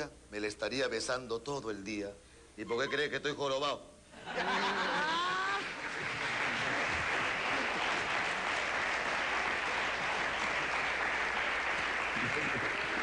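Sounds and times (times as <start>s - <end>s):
audience laughing: 4.2s - 8.4s, 12.0s - 13.0s
audience applause: 5.4s - 13.0s.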